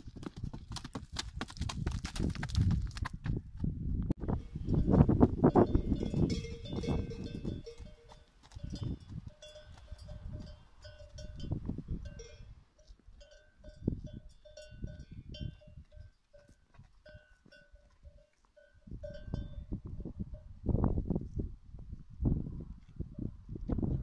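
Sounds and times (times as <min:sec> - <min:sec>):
livestock bell clinking: 0:04.6 - 0:20.5.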